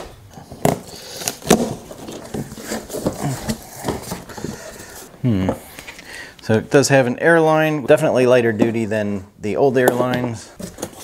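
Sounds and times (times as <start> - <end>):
cardboard rustling and scraping: 0.4 - 5.1, 10.6 - 11.0.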